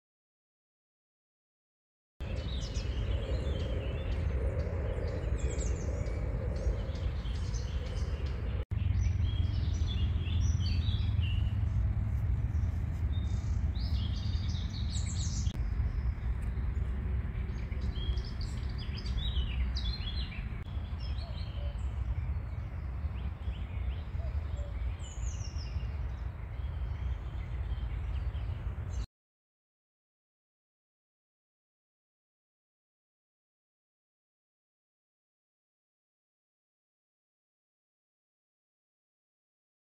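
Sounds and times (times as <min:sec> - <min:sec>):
songbirds singing and chirping: 0:02.2 - 0:29.1
steady low rumble: 0:02.2 - 0:29.1.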